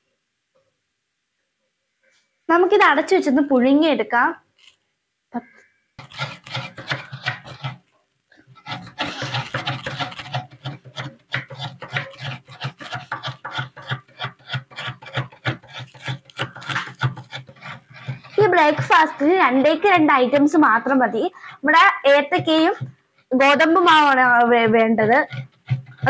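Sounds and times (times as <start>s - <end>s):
hand scraping a plastic plate: 6.0s - 7.8s, 8.4s - 20.6s, 24.4s - 26.0s.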